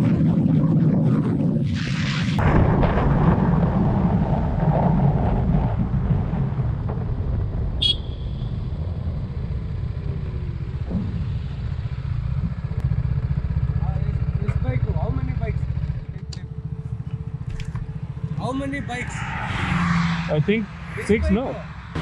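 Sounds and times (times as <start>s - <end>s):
wind noise: 0.0s - 12.8s
motorcycle engine running: 7.8s - 18.9s.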